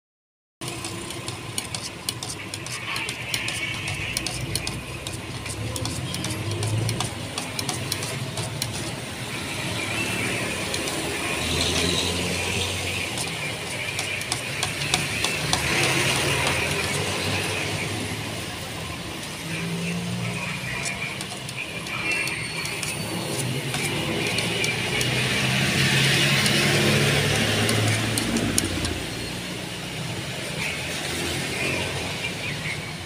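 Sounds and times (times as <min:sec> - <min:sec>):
stick scraping in paint can: 0:00.6 - 0:18.0, 0:20.5 - 0:29.2.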